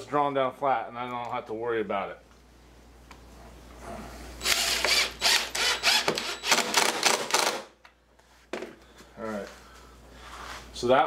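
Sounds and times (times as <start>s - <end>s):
impact driver hammering: 4.4s - 7.8s.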